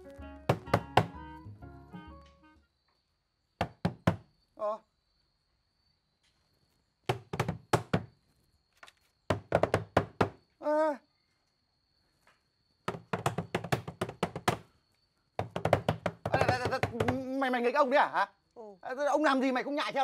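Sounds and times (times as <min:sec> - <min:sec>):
rapid knocking on hard surface: 0:00.5 - 0:01.2, 0:03.6 - 0:04.3, 0:07.1 - 0:08.1, 0:09.3 - 0:10.4, 0:12.9 - 0:14.7, 0:15.4 - 0:17.4.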